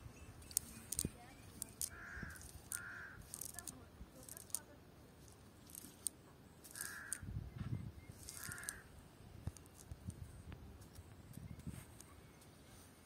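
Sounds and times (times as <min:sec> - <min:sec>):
crow cawing: 0:01.8 - 0:03.4, 0:06.7 - 0:07.2, 0:08.3 - 0:08.9.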